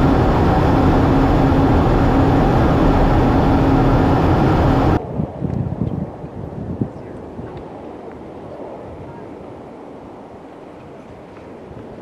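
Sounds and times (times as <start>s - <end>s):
low hum: 0.0s - 5.0s
jet engine and airflow noise: 0.0s - 12.0s.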